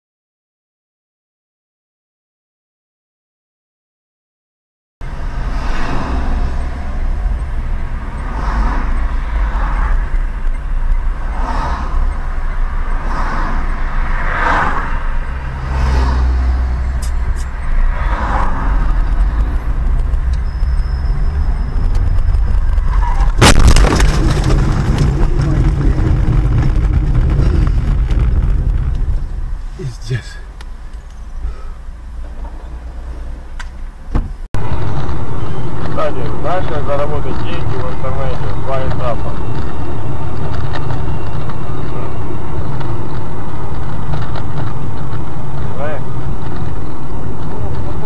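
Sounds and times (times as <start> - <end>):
car engine and road rumble: 5.0 - 48.0
loud collision crash: 22.8 - 30.1.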